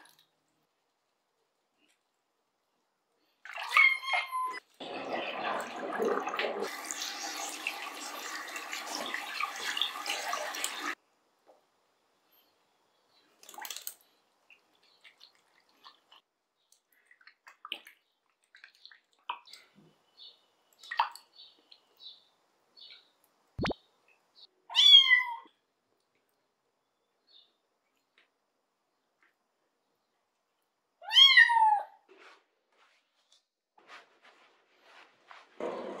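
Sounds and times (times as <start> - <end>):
water splashes and drips: 3.4 - 3.9, 4.7 - 11.0, 13.3 - 20.0, 20.7 - 22.0
water running from sink tap: 4.8 - 11.0.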